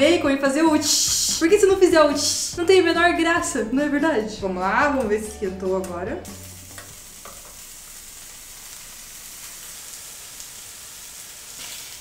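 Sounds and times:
bacon sizzling in a frying pan: 6.2s - 12.0s.

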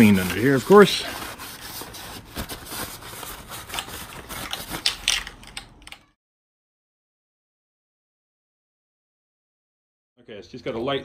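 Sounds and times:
paper towel scrubbing metal: 0.0s - 4.4s.

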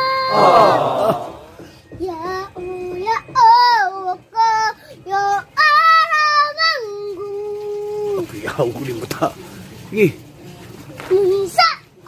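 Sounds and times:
boy singing: 0.0s - 1.2s, 2.0s - 8.2s, 11.1s - 11.8s.

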